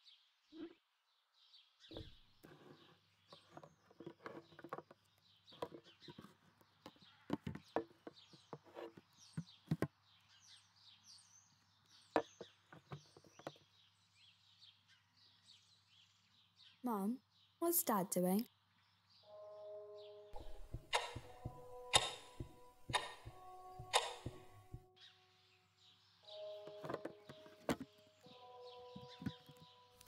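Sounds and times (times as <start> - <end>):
tin cans knocking and clinking: 20.4 - 24.8.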